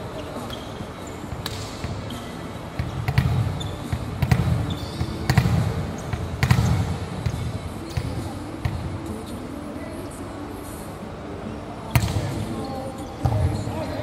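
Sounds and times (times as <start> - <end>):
volleyballs smacking: 2.8 - 4.6, 5.3 - 8.8.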